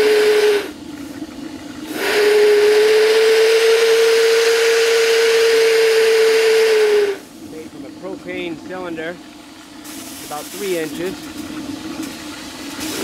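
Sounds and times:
steam whistle tone: 0.0 - 0.8, 1.9 - 7.2
steam hissing: 0.0 - 13.0.

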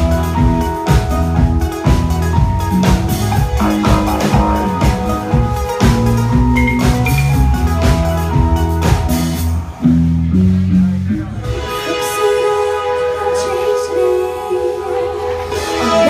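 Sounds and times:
steady drum beat: 0.0 - 9.6
live band playing synth-pop: 0.0 - 16.0.

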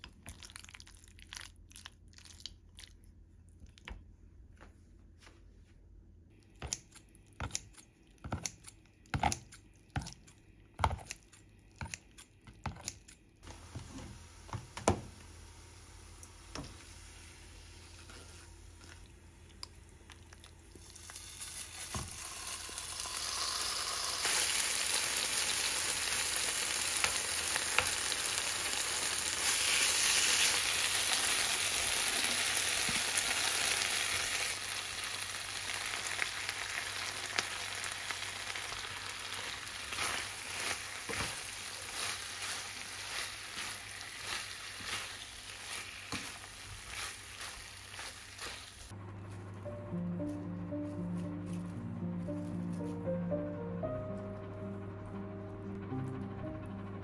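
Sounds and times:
meat sizzling in frying pan: 20.8 - 48.9.

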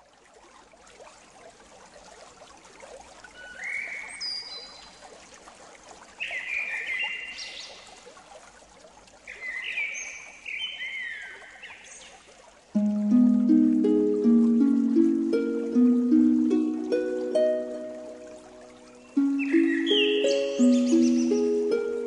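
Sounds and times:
trickling water: 0.0 - 22.0
whistled bird calls: 3.4 - 4.8, 18.7 - 21.6.

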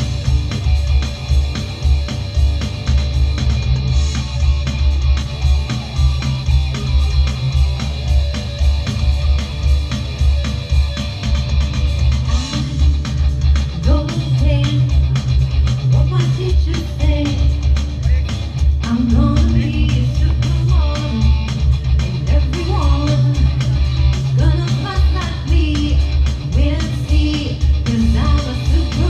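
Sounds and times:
drum kit beat: 0.0 - 29.0
electric bass: 0.0 - 29.0
electric guitar: 0.0 - 29.0
woman singing: 13.8 - 15.0, 15.9 - 17.6, 18.8 - 21.5, 22.3 - 23.6, 24.4 - 29.0.

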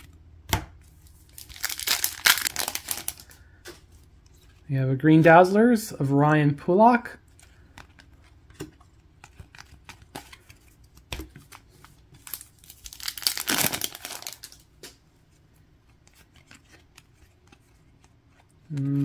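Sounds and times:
card pack wrapper tearing: 1.2 - 3.4, 12.2 - 14.7.

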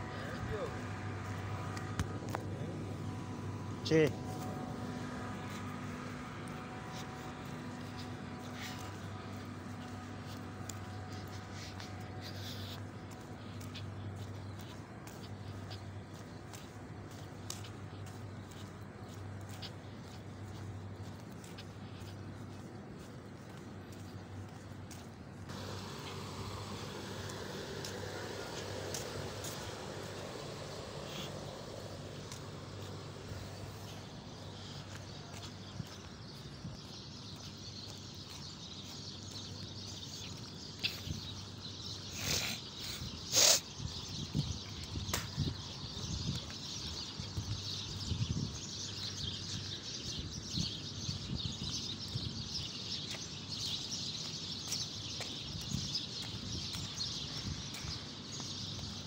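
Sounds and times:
low machinery hum: 0.0 - 41.4
footsteps on hard ground: 0.0 - 59.0
insects chirring: 25.5 - 35.0.

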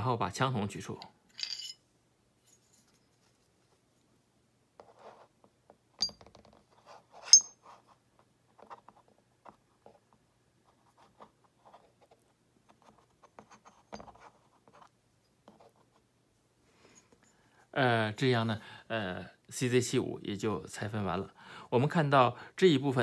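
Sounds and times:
pistol parts clicking and rubbing: 7.2 - 7.6
sharp metallic clinks: 7.3 - 7.6.

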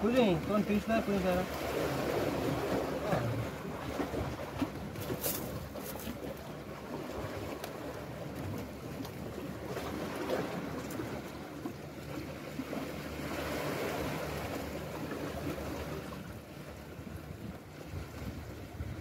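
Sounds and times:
waves washing against rocks: 0.0 - 11.5.

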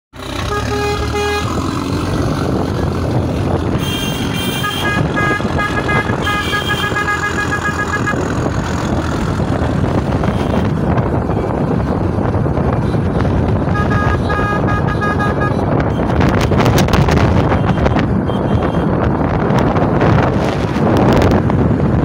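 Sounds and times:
road and engine noise: 0.1 - 22.0
car horns honking: 0.4 - 1.6, 3.6 - 8.4, 10.2 - 10.8, 12.8 - 16.8, 17.4 - 19.0.

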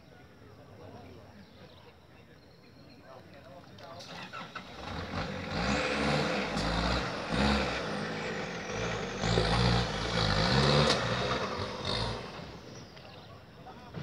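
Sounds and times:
off-road engine revving: 4.0 - 13.3.

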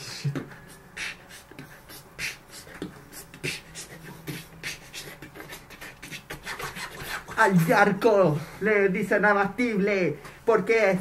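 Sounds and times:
person beatboxing: 0.0 - 8.0.

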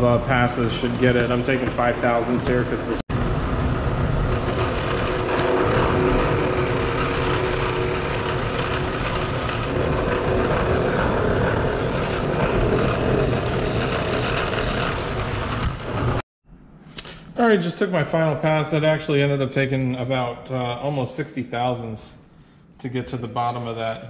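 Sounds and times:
milling machine cutting steel: 3.7 - 16.2.

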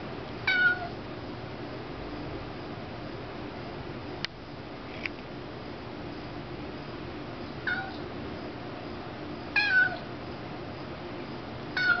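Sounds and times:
kitten meowing: 0.4 - 1.0, 7.7 - 8.0, 9.6 - 10.1, 11.8 - 12.0.

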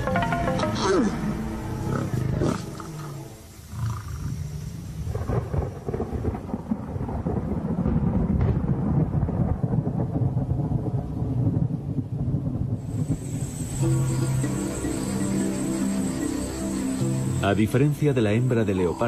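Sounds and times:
lions growling: 1.8 - 4.7.

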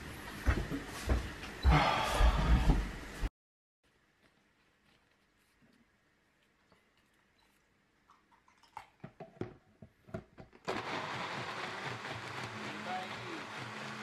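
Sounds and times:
blender motor running: 10.7 - 14.0.

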